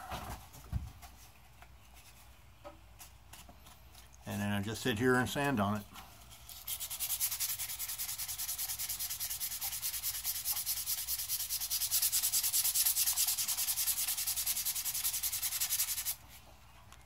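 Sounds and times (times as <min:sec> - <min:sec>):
sandpaper rubbing wood: 0:06.5 - 0:16.2.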